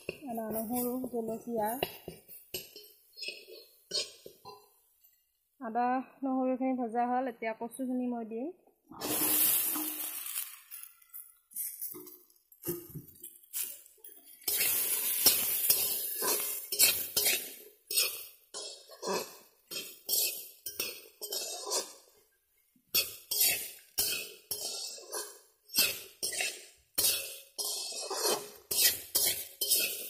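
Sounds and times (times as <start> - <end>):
stems sizzling in hot oil: 0.0 - 4.7, 8.9 - 22.3, 22.9 - 30.0
spatula scraping a metal pan: 2.3 - 4.6, 13.5 - 22.1, 22.9 - 30.0.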